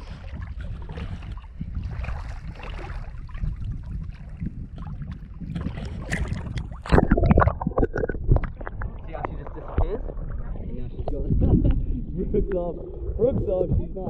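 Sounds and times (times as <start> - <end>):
feet splashing through water: 0.0 - 7.3
low wind rumble: 0.0 - 14.0.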